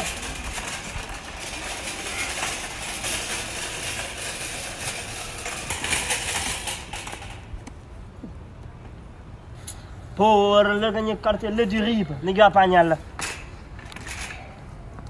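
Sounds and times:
shopping cart rattling on pavement: 0.0s - 7.6s, 10.5s - 14.6s.

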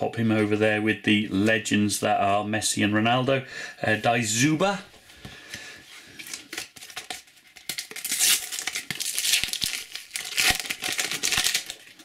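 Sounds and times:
packet tearing open: 6.2s - 12.0s
wrapper crinkling: 6.2s - 12.0s.

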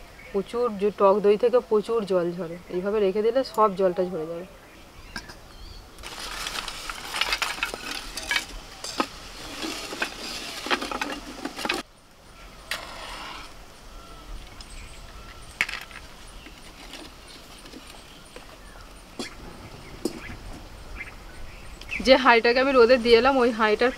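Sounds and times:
firewood clattering into stove: 6.0s - 11.8s.

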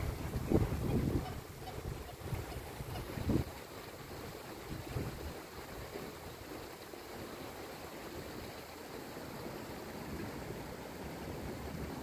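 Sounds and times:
rain falling on pond: 0.0s - 12.0s.

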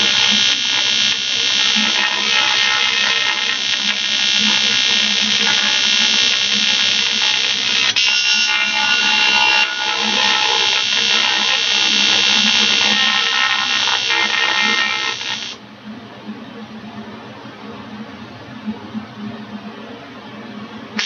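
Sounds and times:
welding arc buzzing: 0.0s - 15.6s.

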